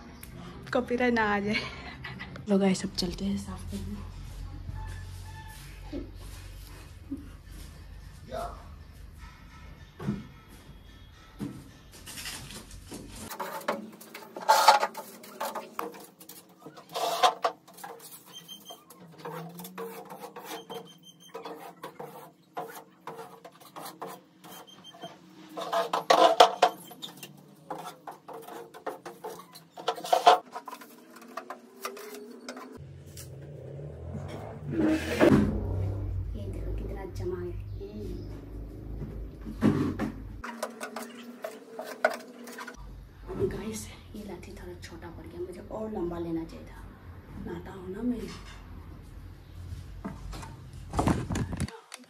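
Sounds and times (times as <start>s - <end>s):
duster brushing a board ceiling: 13.2s - 32.8s.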